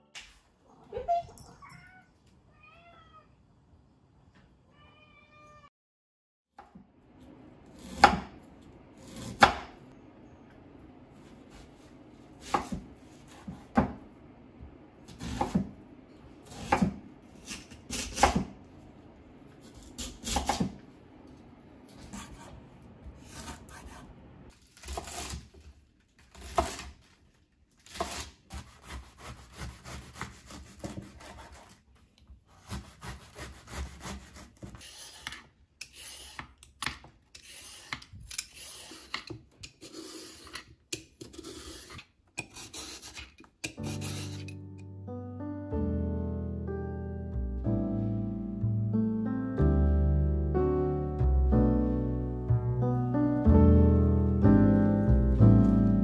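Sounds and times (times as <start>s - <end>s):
knife cutting on wooden board: 27.9s - 31.8s, 32.6s - 44.6s.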